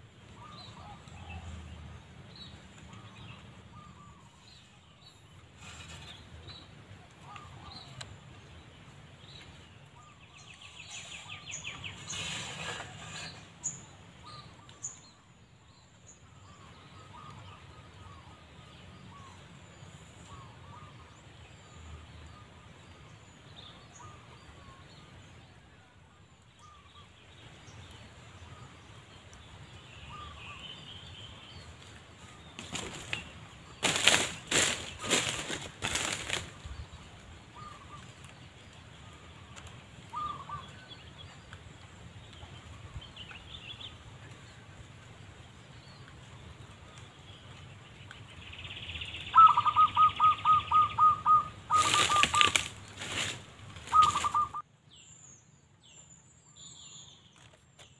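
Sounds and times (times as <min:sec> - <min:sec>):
faint bird calls: 0:02.8 - 0:08.3, 0:29.9 - 0:41.6, 0:48.8 - 0:54.7
loud rustling and flapping: 0:32.6 - 0:36.7, 0:51.7 - 0:54.4.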